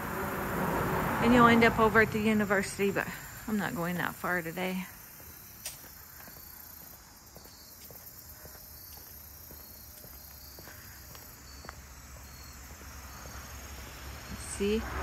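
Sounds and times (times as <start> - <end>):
insects singing in trees: 0.0 - 15.0.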